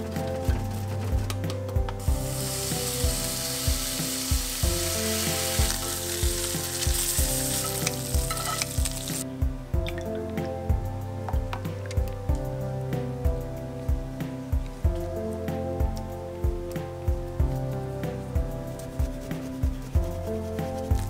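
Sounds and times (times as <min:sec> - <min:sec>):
background music with a beat: 0:00.0 - 0:21.0
bacon sizzling in a skillet: 0:02.0 - 0:09.2.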